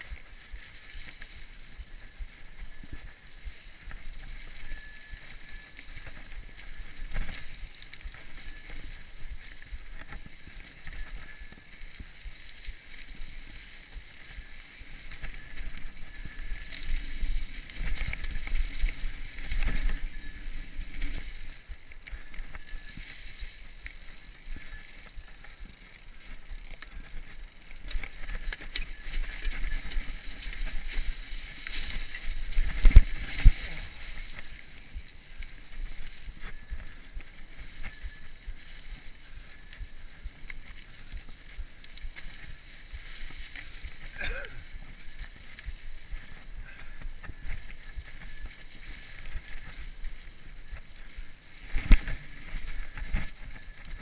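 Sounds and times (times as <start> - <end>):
bike tyres rolling on dirt: 0.0 - 54.0
wind rumble on microphone: 27.8 - 54.0.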